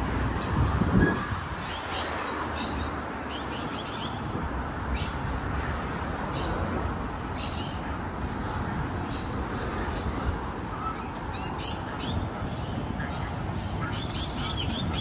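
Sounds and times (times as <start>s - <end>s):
birds chirping: 7.3s - 15.0s.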